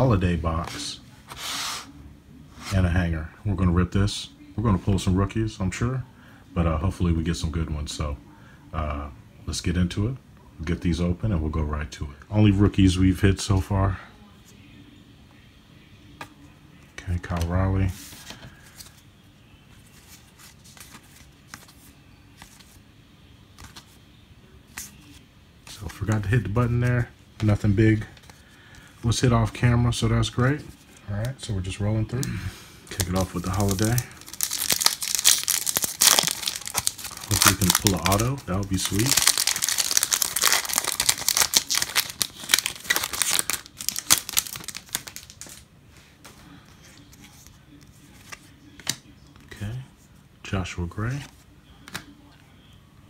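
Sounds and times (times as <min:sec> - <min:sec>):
trading cards flicking and rustling: 0:23.5 - 0:24.0, 0:32.9 - 0:45.6
wrapper crinkling and tearing: 0:32.9 - 0:45.6.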